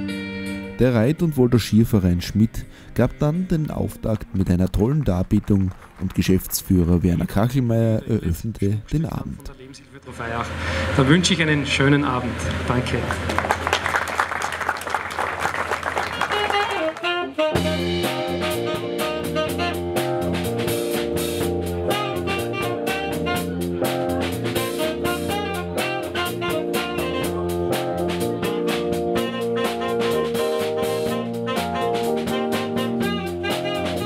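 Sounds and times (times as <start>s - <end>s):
jazz combo playing: 0.0s - 5.4s, 16.0s - 34.0s
applause: 4.6s - 7.7s, 12.9s - 17.3s.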